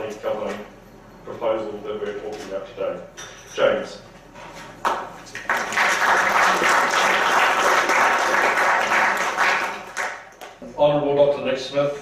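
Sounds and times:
audience applauding: 5.3s - 10.3s.

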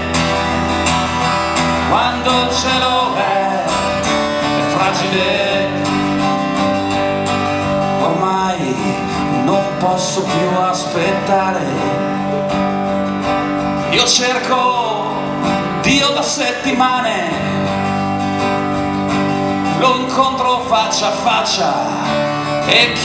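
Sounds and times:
acoustic guitar strumming: 0.0s - 23.0s
man singing into microphone: 1.8s - 6.3s, 7.9s - 12.5s, 13.8s - 17.8s, 19.7s - 23.0s.

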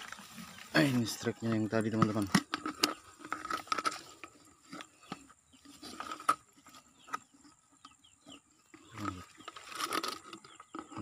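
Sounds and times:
rustling: 0.0s - 7.2s
plastic bucket clicks and knocks: 1.5s - 4.0s.

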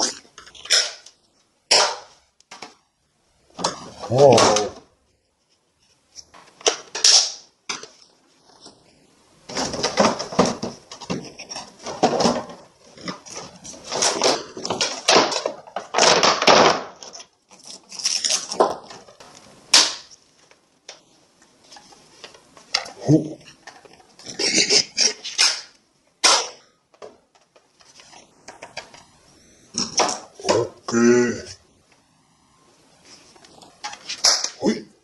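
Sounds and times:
plastic toy parts rustling and clicking: 0.0s - 2.8s, 5.4s - 8.8s, 9.4s - 29.2s, 33.1s - 34.6s.

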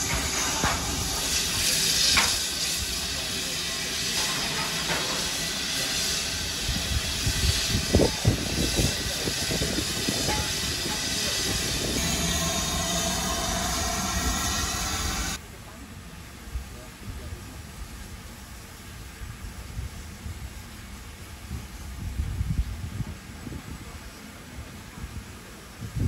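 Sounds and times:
steam locomotive hissing: 0.0s - 15.5s
sharp knocks and clanks: 10.2s - 11.2s.

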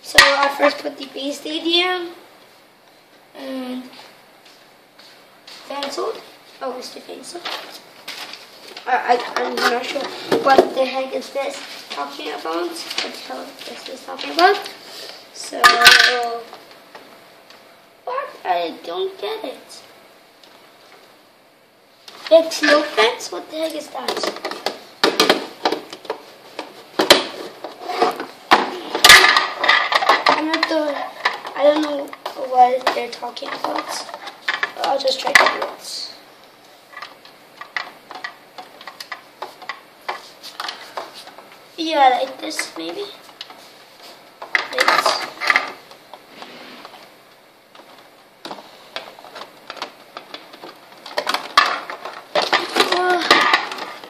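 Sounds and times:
hard plastic parts clattering: 24.0s - 35.8s, 44.4s - 45.8s, 47.8s - 54.0s.

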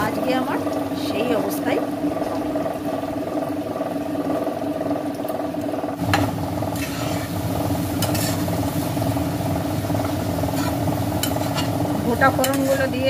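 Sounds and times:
light sizzling: 0.0s - 13.0s
steady hum: 0.0s - 13.0s
spatula scraping a pot: 6.7s - 7.3s, 8.0s - 8.5s, 10.4s - 11.8s, 12.4s - 13.0s.

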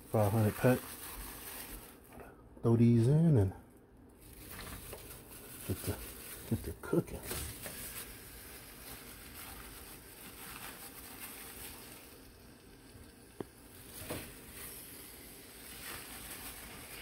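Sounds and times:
chicken sizzling in oil: 7.6s - 17.0s.

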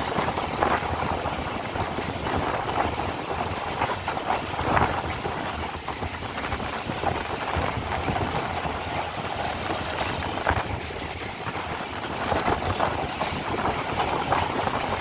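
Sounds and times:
train wheels on track rushing: 0.0s - 15.0s.

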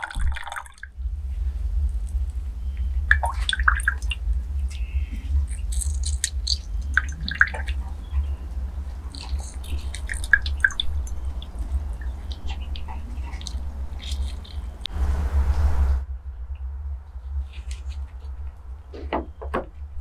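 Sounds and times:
juice dripping into glass cups: 0.0s - 0.9s, 2.1s - 14.9s
low rumble: 0.0s - 20.0s
wet squelches from squeezed lemon: 3.2s - 14.9s.

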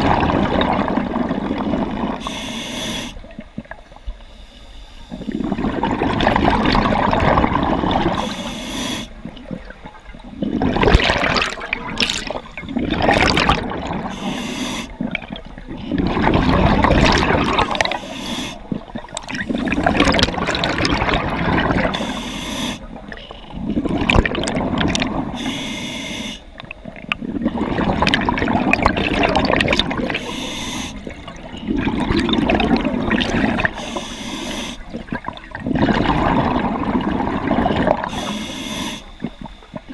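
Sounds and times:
diver breathing through regulator: 2.2s - 3.3s, 8.2s - 9.2s, 14.0s - 15.1s, 17.5s - 18.9s, 21.8s - 23.6s, 25.3s - 26.6s, 30.0s - 31.4s, 33.5s - 35.0s, 38.0s - 39.7s
bubbling exhalations: 5.2s - 8.3s, 9.1s - 22.2s, 22.8s - 25.5s, 27.2s - 38.4s.

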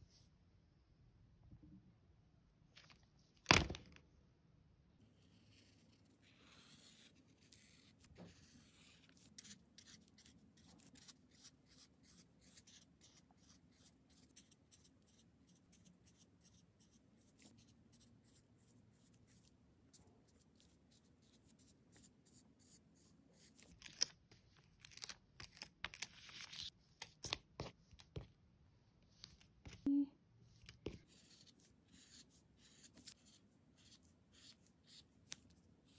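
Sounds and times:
marker scratching on paper: 5.5s - 19.5s, 30.6s - 35.9s.

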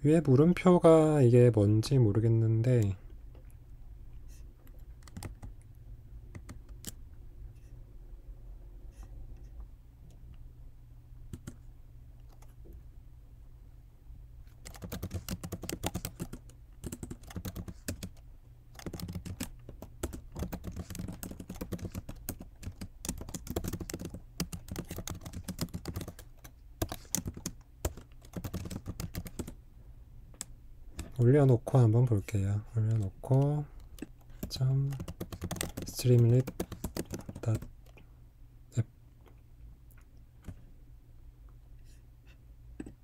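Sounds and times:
computer keyboard typing: 4.7s - 5.6s, 6.3s - 7.0s, 11.3s - 11.6s, 14.5s - 29.6s, 32.9s - 38.0s.

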